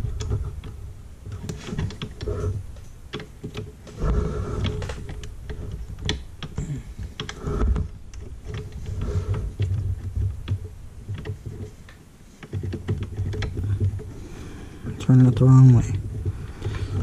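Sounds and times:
small clicks and taps: 0.1s - 4.0s, 4.6s - 14.1s.

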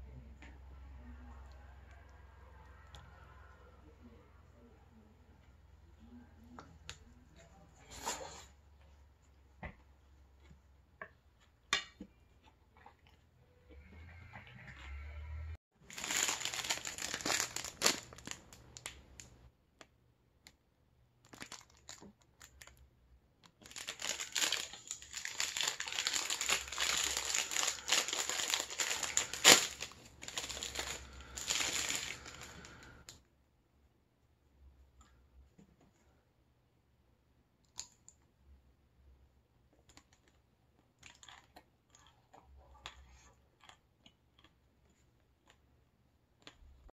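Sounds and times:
plastic wrapper crinkling and tearing: 15.8s - 19.4s, 21.2s - 22.8s, 23.4s - 33.1s.

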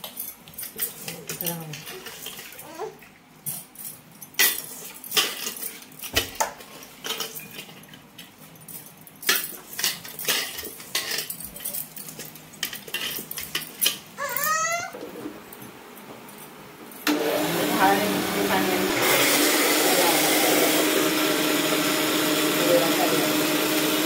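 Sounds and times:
jar and steel containers clinking: 3.4s - 14.5s.

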